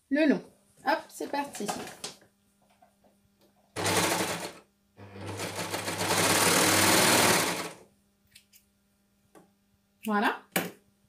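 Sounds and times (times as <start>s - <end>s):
overlocker stitching: 3.8s - 7.8s.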